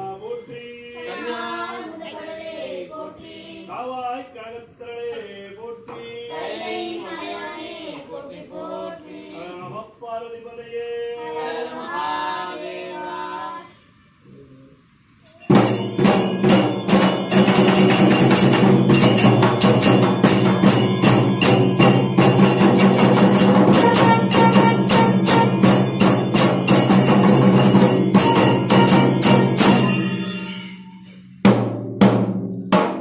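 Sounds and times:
person singing unaccompanied: 0.0s - 13.8s
brass cymbals clashing: 15.4s - 32.9s
barrel drums beaten fast: 15.5s - 30.6s, 31.4s - 33.0s
brass horn steady tone: 23.2s - 26.4s, 28.2s - 30.0s.

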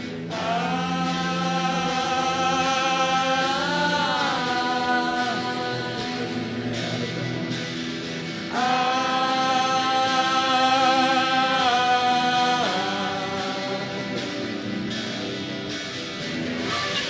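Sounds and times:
droning chant-like music: 0.0s - 17.0s.

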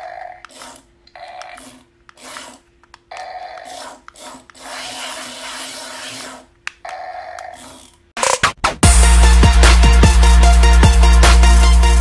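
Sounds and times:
toy gear motors whirring: 0.0s - 8.2s.

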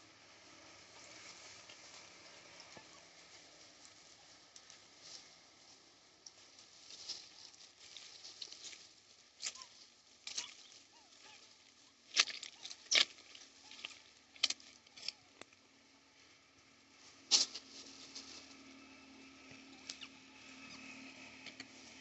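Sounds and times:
sharp rustles and clicks: 6.2s - 15.6s, 17.3s - 18.6s.

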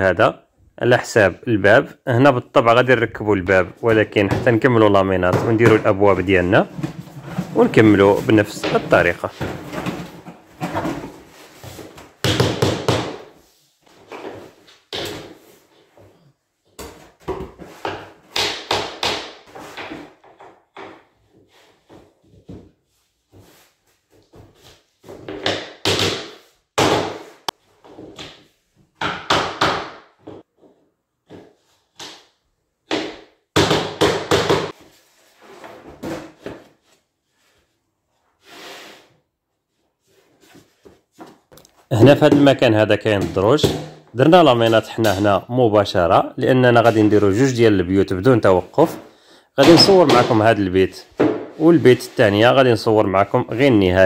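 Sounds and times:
rubber mallet knocking planks: 12.2s - 13.3s, 16.8s - 21.0s, 25.3s - 27.4s, 29.0s - 30.4s, 32.8s - 34.8s.

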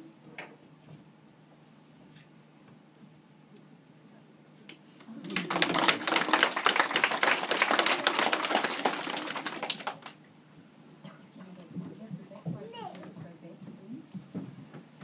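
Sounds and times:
young children clapping: 5.0s - 10.2s.

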